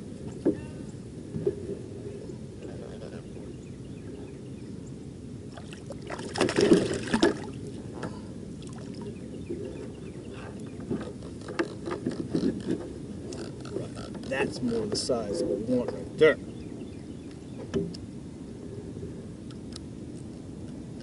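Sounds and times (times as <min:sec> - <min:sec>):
low wash of water: 0:05.1 - 0:10.0
fish splashing: 0:05.5 - 0:07.6.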